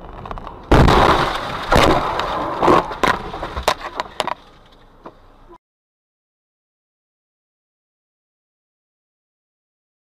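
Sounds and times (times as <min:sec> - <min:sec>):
car crashing impacts: 0:00.5 - 0:05.2.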